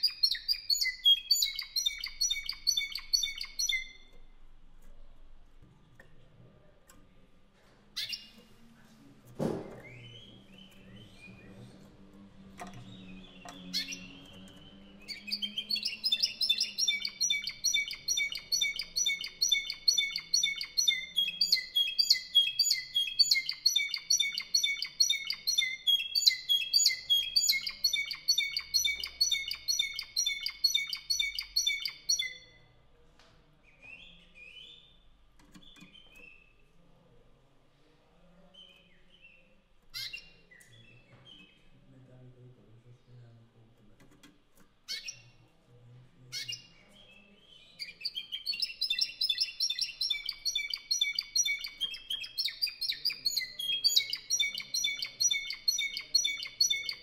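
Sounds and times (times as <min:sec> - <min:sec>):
canary singing trills: 0:00.0 - 0:04.2, 0:08.0 - 0:08.5, 0:12.6 - 0:32.6, 0:38.6 - 0:41.8, 0:44.9 - 0:45.4, 0:46.3 - 0:57.0.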